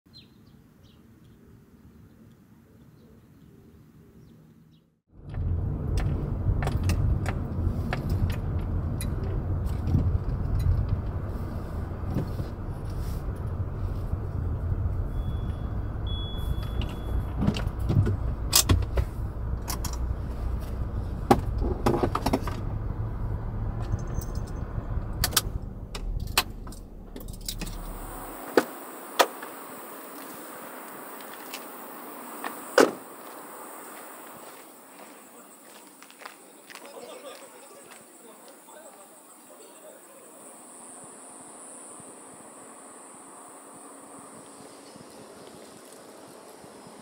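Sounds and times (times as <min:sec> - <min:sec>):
car engine rumble: 0:05.1 - 0:35.3
steady hiss: 0:27.5 - 0:36.5.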